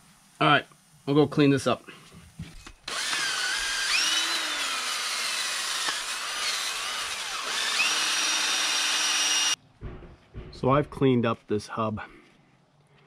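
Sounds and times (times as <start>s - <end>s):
motor whine: 2.9s - 9.6s.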